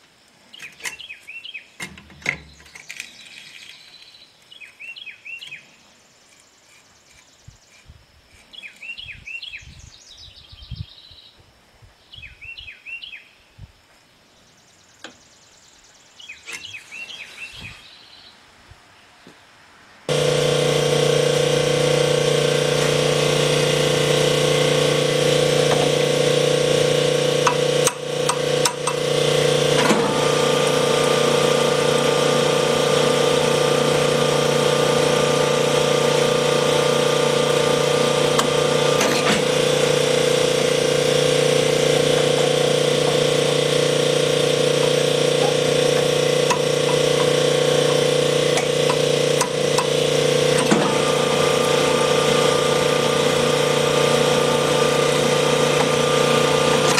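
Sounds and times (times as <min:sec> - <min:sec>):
honing machine humming: 0:20.1 - 0:56.9.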